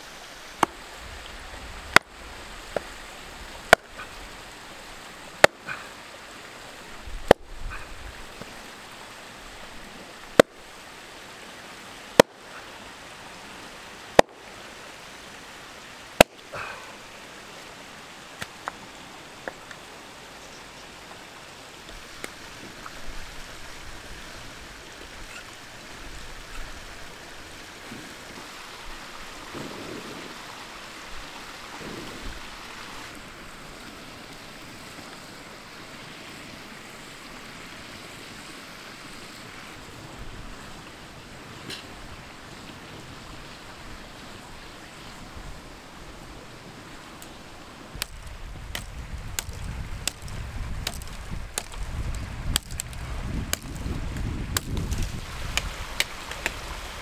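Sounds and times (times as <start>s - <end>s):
mountain stream rushing: 0.0s - 57.0s
hatchet strikes into wood: 48.8s - 51.8s, 54.5s - 54.8s.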